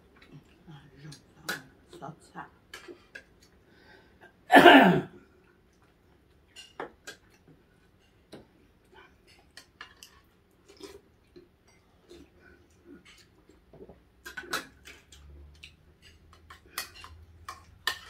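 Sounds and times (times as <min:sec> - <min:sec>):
chewing: 0:08.8 - 0:18.0.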